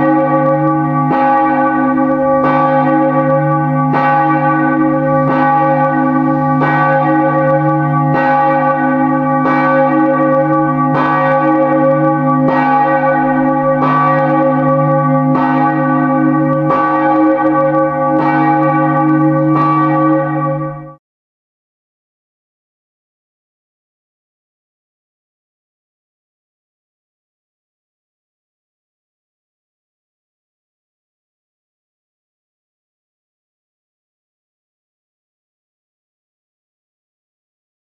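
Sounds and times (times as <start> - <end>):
church bell tolling: 0.0 - 21.0.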